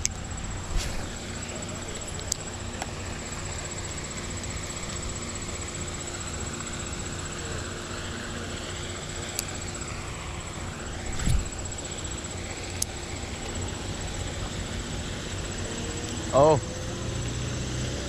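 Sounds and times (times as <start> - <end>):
low hum: 0.0 - 17.7
high-pitched whine: 0.0 - 18.0
arm rubbing microphone: 0.6 - 1.2, 11.1 - 11.6.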